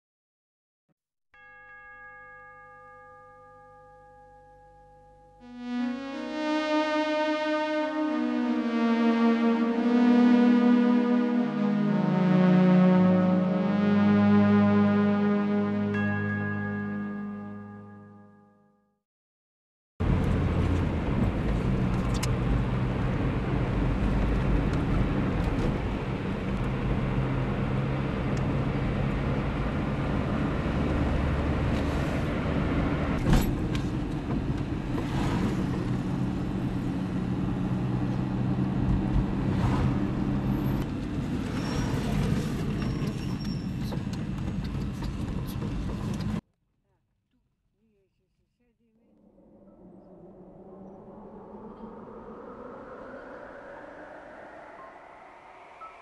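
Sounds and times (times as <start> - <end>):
car engine drone: 5.4 - 18.0, 20.0 - 46.4, 49.0 - 56.0
tyre and road noise: 20.0 - 46.4.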